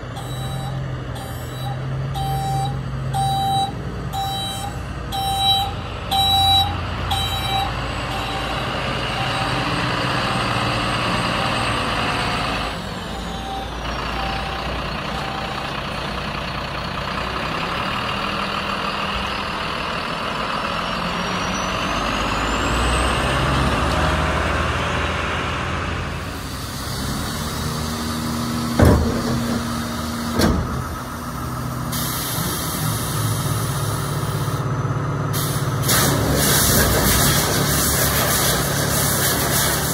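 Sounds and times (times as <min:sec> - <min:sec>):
diesel engine running: 0:00.0 - 0:39.9
reversing beeper: 0:00.2 - 0:15.8
air-release bursts: 0:31.9 - 0:34.6, 0:35.4 - 0:39.9.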